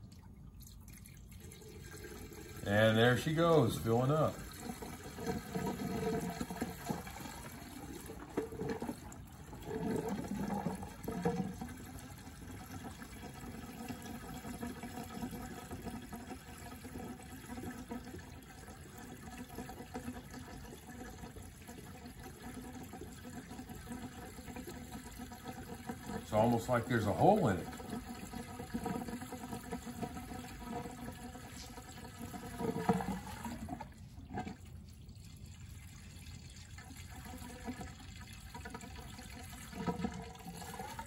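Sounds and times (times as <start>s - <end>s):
liquid pouring from plastic jug: 0.0s - 41.0s.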